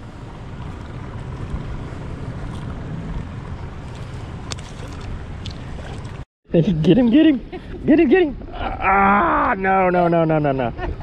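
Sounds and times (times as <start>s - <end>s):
wind buffeting microphone: 0.0s - 6.2s
choppy water: 0.0s - 6.3s.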